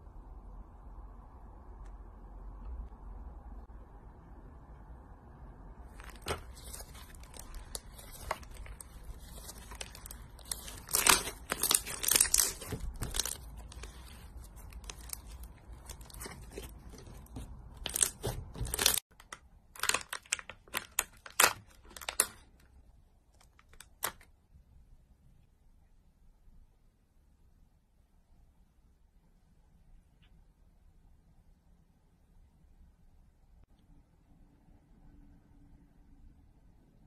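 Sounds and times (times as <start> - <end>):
slime squishing and crackling: 5.9 - 22.6.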